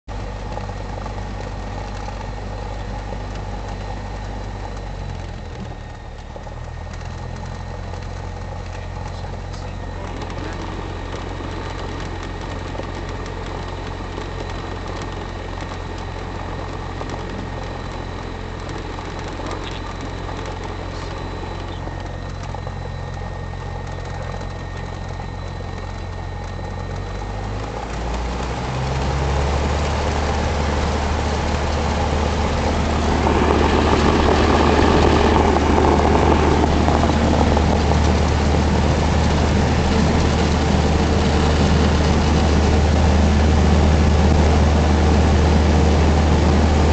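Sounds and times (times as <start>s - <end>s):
airplane engine and propeller: 0.1s - 46.9s
rushing air noise: 31.0s - 39.9s.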